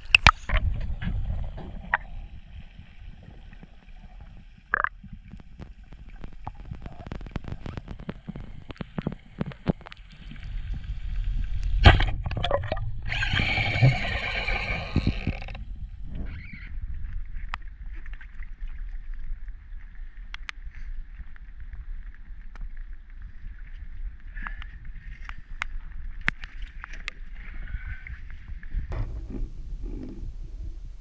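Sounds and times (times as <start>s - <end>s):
sharp underwater clicks: 0.0s - 0.6s, 4.7s - 10.0s
wind and water: 0.0s - 31.0s.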